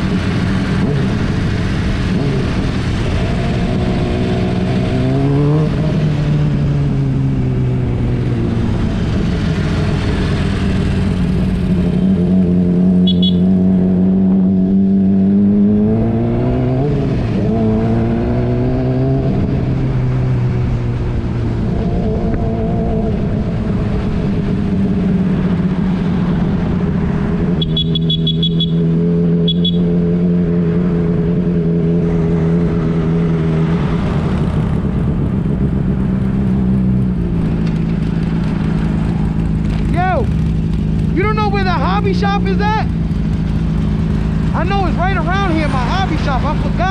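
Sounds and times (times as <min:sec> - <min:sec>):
motorcycle engine running: 0:00.0 - 0:16.6, 0:17.4 - 0:46.9.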